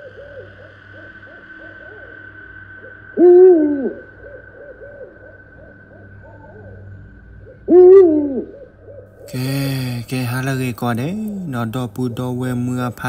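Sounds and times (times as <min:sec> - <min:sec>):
owl hooting: 0:00.0 - 0:10.5
steady high drone: 0:00.0 - 0:13.0.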